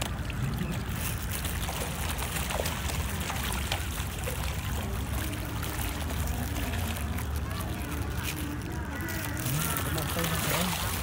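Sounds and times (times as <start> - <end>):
fish splashing and slurping: 0.0 - 11.0.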